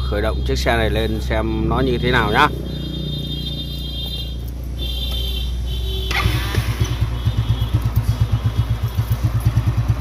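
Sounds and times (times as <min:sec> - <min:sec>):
scooter engine starting and idling: 0:05.9 - 0:10.0.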